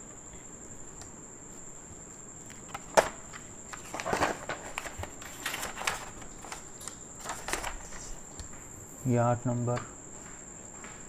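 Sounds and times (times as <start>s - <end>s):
paper rustling: 2.4s - 8.4s.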